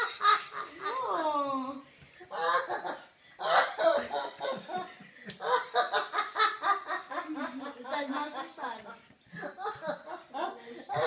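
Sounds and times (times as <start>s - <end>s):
woman laughing heartily: 2.3s - 11.0s.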